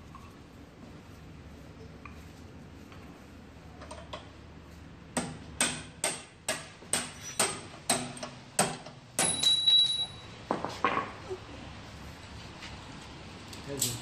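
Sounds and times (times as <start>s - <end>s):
hammer striking metal: 5.2s - 10.2s
high metallic ring: 9.2s - 10.4s.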